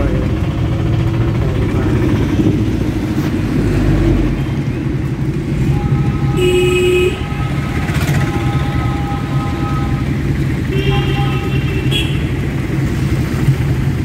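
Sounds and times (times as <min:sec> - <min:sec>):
vehicle engine and road noise: 0:00.0 - 0:14.0
vehicle horn toot: 0:05.7 - 0:10.1, 0:10.7 - 0:12.4.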